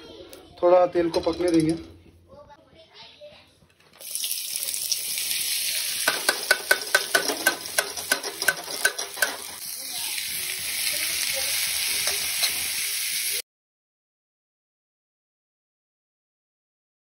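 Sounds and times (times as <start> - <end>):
onions sizzling in hot oil: 4.0 - 13.4
metal spoon clinking on pan: 6.0 - 9.6, 12.0 - 12.6.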